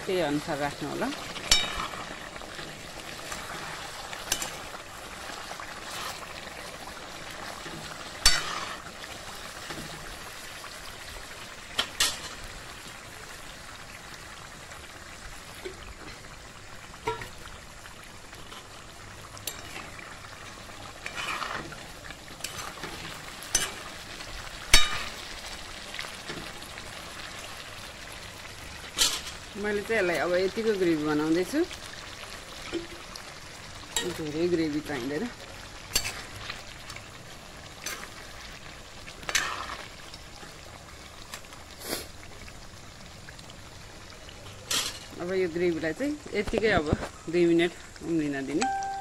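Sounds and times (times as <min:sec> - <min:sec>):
curry sizzling in an iron pan: 0:00.0 - 0:49.0
spoon scraping and clacking on pan: 0:01.3 - 0:02.1, 0:03.3 - 0:04.7, 0:07.6 - 0:08.9, 0:17.0 - 0:17.4, 0:19.4 - 0:19.9, 0:21.0 - 0:21.8, 0:22.4 - 0:23.9, 0:24.7 - 0:25.2, 0:35.9 - 0:36.4
water poured into pan: 0:15.0 - 0:29.6.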